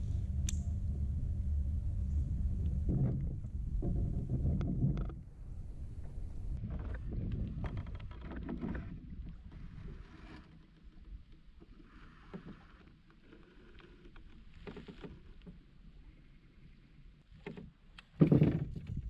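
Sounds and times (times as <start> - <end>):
water lapping against a hull: 6.6 - 19.0.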